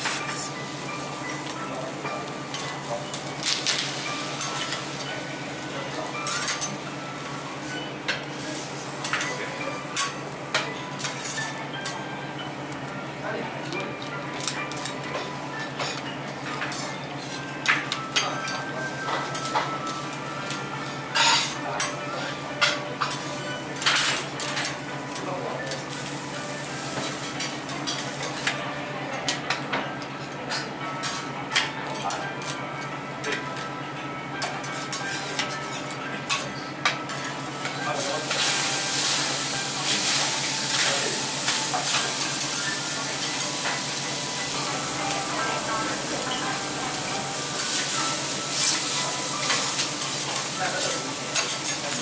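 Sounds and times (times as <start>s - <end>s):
food sizzling: 0.0s - 11.5s, 37.2s - 52.0s
metal spatulas clinking on griddle: 6.2s - 6.8s, 9.0s - 12.0s, 15.8s - 17.0s, 20.5s - 22.0s, 27.0s - 28.6s, 34.4s - 43.9s, 47.6s - 52.0s.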